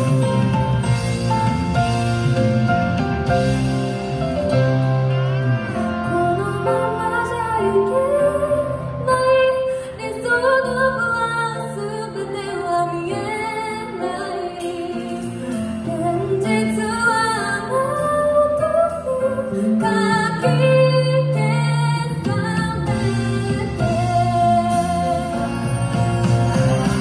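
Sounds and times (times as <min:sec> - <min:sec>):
woman singing: 0:05.8 - 0:26.0.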